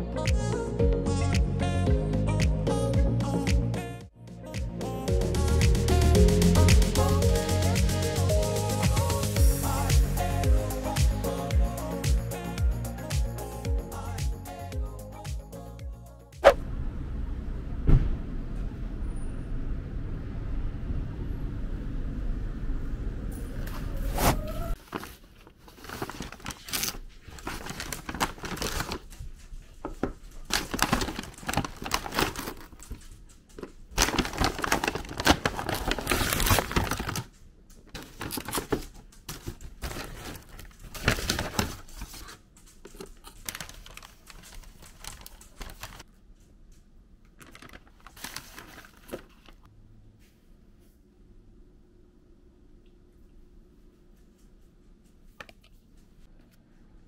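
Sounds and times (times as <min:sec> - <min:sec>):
paper and plastic packaging rustling: 0:23.9 - 0:46.2, 0:47.3 - 0:49.7.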